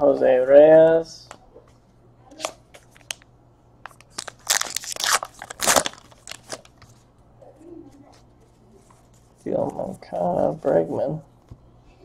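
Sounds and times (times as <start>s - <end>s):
trading cards rustling and clicking: 3.9s - 7.0s.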